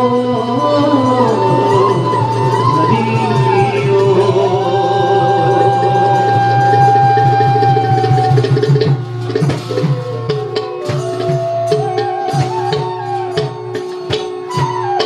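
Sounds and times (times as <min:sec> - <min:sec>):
drum strokes: 0:00.0 - 0:15.0
harmonium melody: 0:00.0 - 0:15.0.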